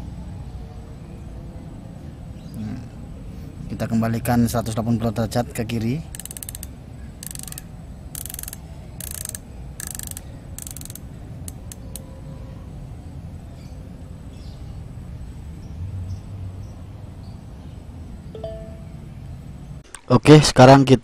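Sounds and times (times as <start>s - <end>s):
rifle scope turret clicking: 6.1s - 12.0s.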